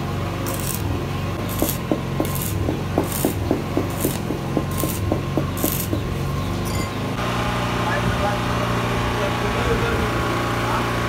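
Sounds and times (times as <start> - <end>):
welding arc crackling and hissing: 0.4 - 6.3.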